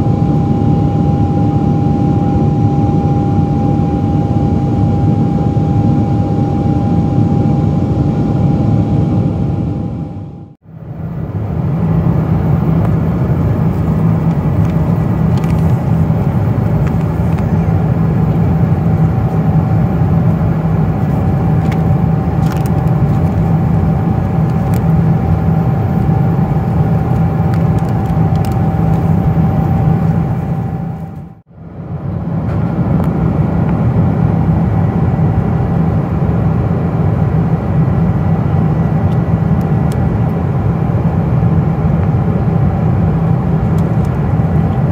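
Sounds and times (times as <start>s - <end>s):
airplane cabin engine noise: 0.0s - 44.9s
faint steady hum: 0.0s - 44.9s.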